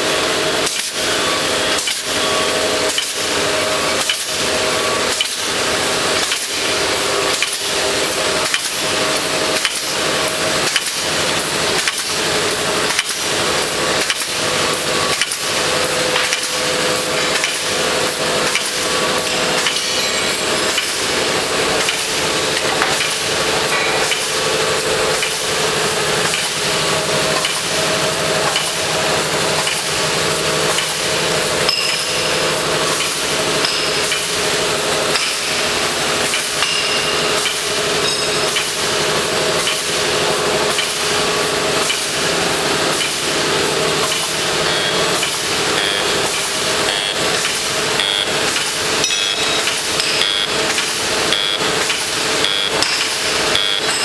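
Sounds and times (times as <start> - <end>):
machine clattering knocks: 16.1 - 54.0
mechanical drone: 41.2 - 54.0.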